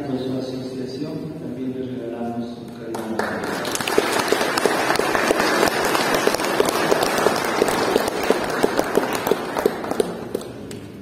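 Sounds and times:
congregation applauding: 2.9 - 10.8.

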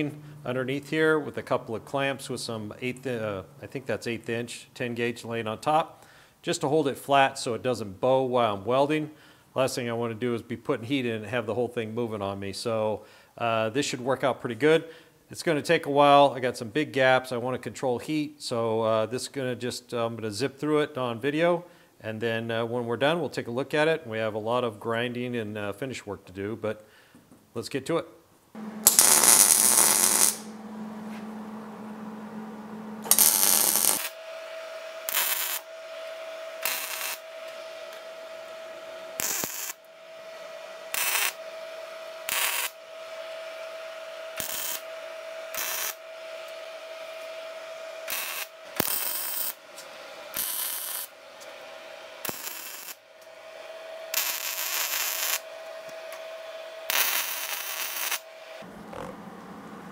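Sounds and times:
steady hum: 0.0 - 3.6, 28.6 - 59.9
welder arc crackle: 28.6 - 40.0, 40.9 - 41.5, 42.2 - 51.2, 52.2 - 53.4, 54.1 - 58.3.

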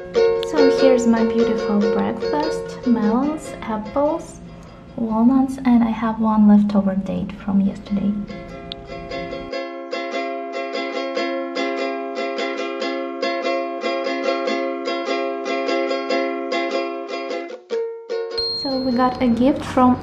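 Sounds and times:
plucked strings music: 0.0 - 20.0.

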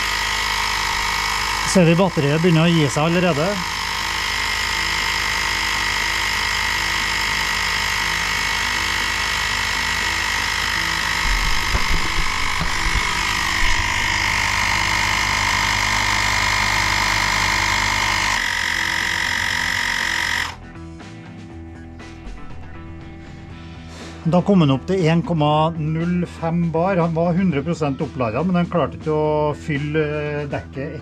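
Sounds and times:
mini tyre compressor running: 0.0 - 20.6.

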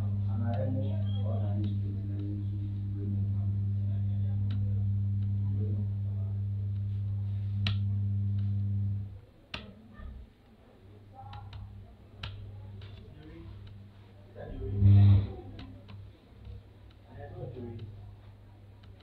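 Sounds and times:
low electrical hum: 0.0 - 19.0
sharp clicks: 11.2 - 13.9.

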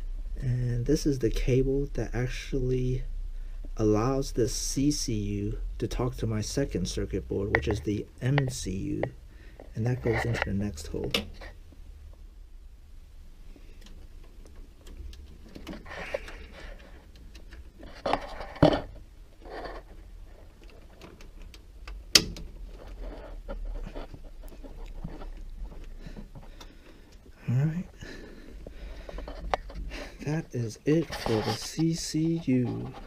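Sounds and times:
close breathing: 3.2 - 3.8, 9.2 - 9.8, 15.8 - 17.1, 25.0 - 30.6
plastic connectors being handled: 13.8 - 27.4.

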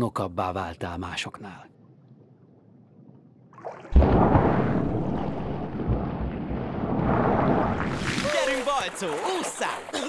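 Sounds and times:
heavy splash into water: 3.6 - 10.0
churning rushing water: 3.7 - 10.0.

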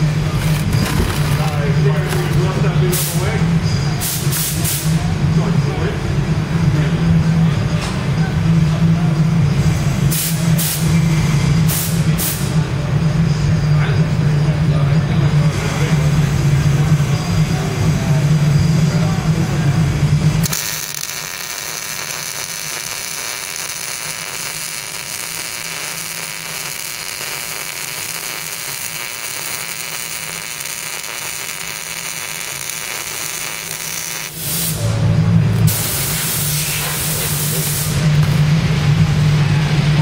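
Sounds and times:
welding arc hissing: 0.0 - 3.3, 20.3 - 34.9, 35.6 - 38.1.

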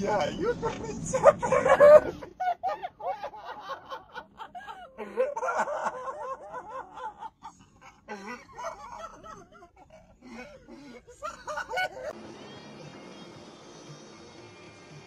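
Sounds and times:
person laughing: 1.1 - 12.2.

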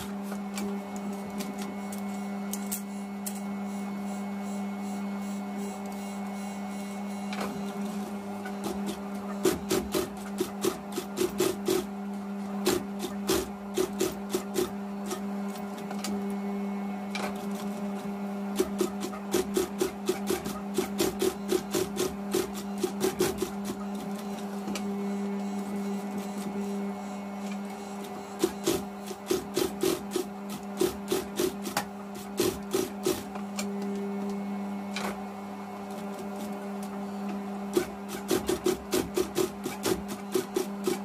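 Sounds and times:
sewing machine motor humming: 5.4 - 16.5, 17.1 - 35.0, 35.8 - 41.0.

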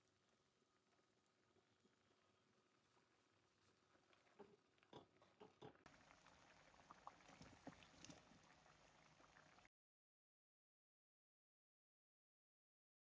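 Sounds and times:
gravy bubbling in a pan: 0.0 - 9.7.

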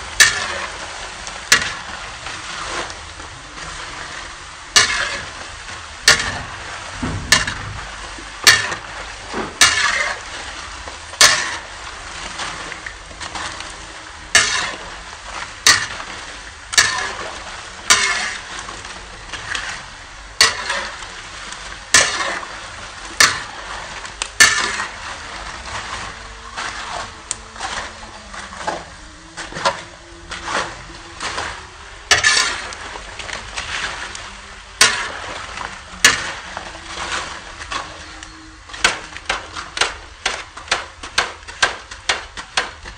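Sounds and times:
spatula scraping a wok: 0.0 - 15.0, 15.6 - 34.2, 34.8 - 42.6
crackers sizzling in oil: 0.0 - 42.9.

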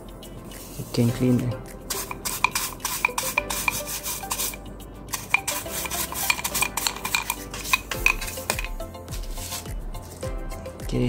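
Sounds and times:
hands scrubbing plastic casing: 1.9 - 10.2.

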